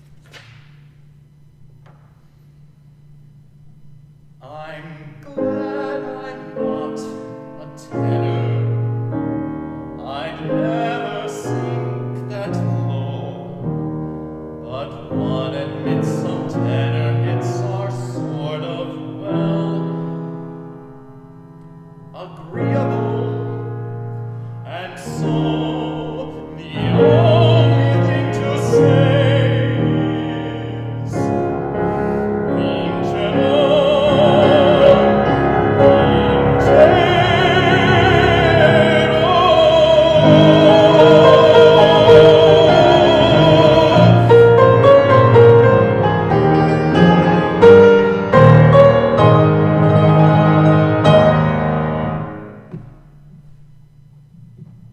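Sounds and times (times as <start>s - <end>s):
baritone singing operatically: 4.4s - 9.1s, 10.0s - 13.7s, 14.6s - 20.5s, 22.1s - 23.8s, 24.6s - 52.3s
piano accompaniment: 4.8s - 54.9s.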